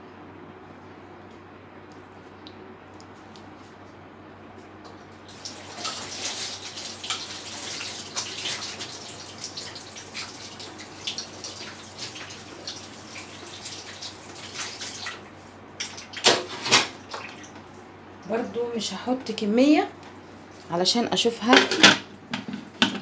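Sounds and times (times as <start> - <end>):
tap water running and splashing: 5.2 - 17.7.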